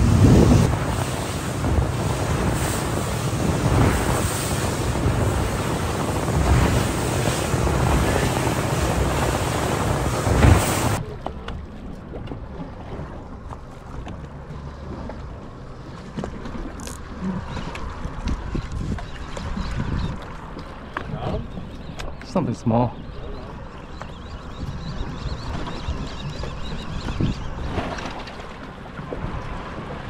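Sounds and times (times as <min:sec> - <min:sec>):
wind buffeting microphone: 0:00.0 - 0:11.1, 0:17.4 - 0:30.0
rushing water: 0:00.0 - 0:11.2, 0:25.3 - 0:30.0.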